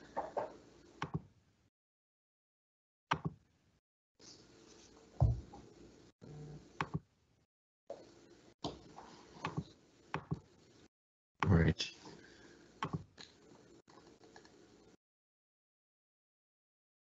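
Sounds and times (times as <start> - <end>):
soft thump: 5.2 - 5.5.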